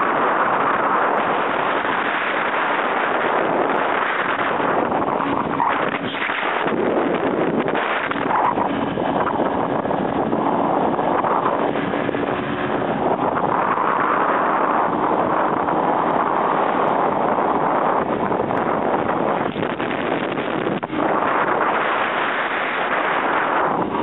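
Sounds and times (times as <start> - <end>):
wind rushing over microphone: 0.0 - 24.0
faint engine hum: 6.6 - 24.0.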